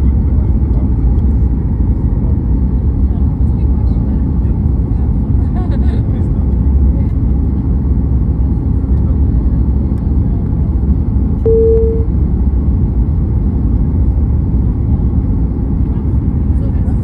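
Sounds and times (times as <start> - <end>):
airliner engine and airflow rumble: 0.0 - 17.0
short steady tone: 11.5 - 12.1.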